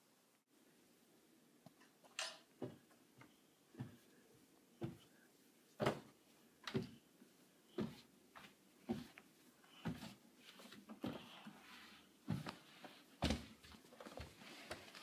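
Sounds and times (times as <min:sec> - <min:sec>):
footsteps down wooden stairs: 0:02.6 - 0:04.1, 0:04.8 - 0:05.1, 0:05.8 - 0:07.0, 0:07.7 - 0:09.2, 0:09.8 - 0:11.6, 0:12.2 - 0:15.0.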